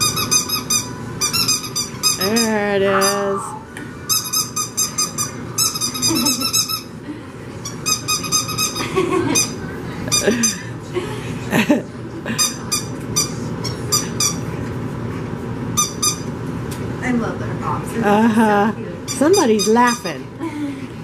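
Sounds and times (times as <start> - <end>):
squeaky dog toy squeaks: 0.0 - 3.4, 4.1 - 6.9, 7.7 - 8.8, 15.8 - 16.3, 19.1 - 20.2.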